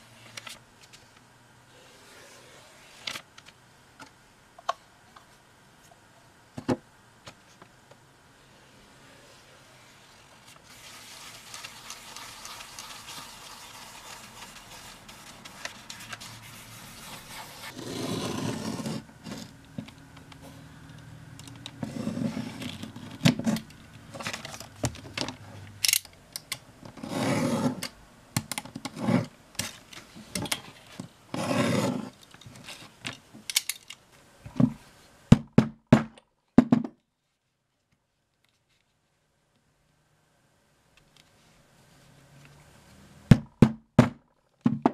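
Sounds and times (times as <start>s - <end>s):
soft brushing hiss: 0.0s - 26.3s, 34.0s - 35.3s, 37.2s - 43.2s
knife scraping through leather: 16.7s - 19.5s, 27.0s - 27.8s, 31.4s - 32.1s.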